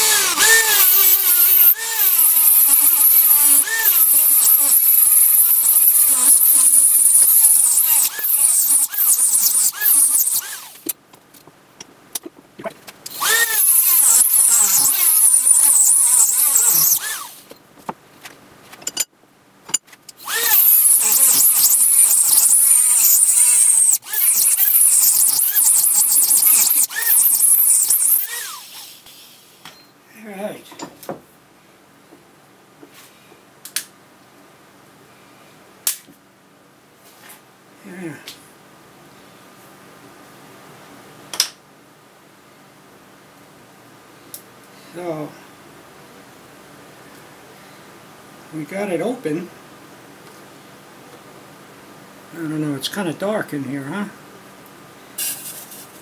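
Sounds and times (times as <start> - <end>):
rotary tool cutting whine: 0.0 - 10.9, 13.1 - 17.6, 20.2 - 29.2.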